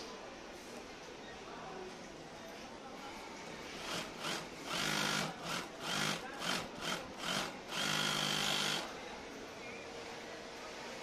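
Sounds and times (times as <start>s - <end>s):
sewing machine whirring: 3.8s - 8.9s.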